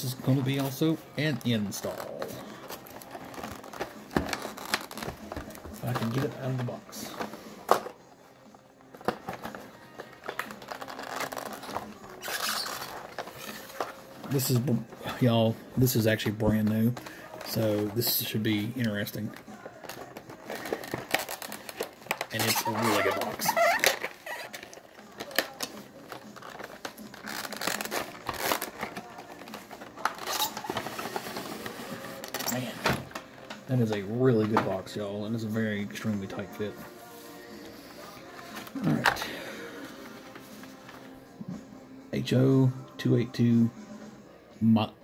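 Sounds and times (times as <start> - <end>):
packaging rustling: 0.2 - 8.0, 8.8 - 35.4.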